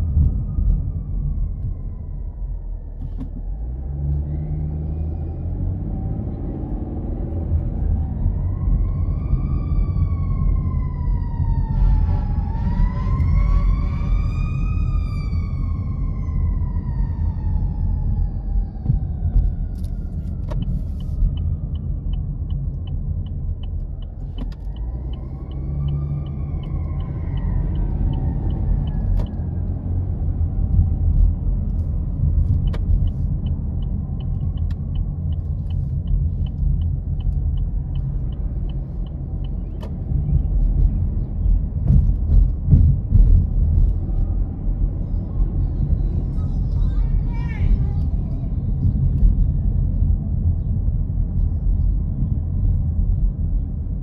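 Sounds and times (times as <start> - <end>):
emergency siren wailing: 0.0 - 21.8, 23.7 - 31.2
car rumbling on the road: 0.0 - 54.0.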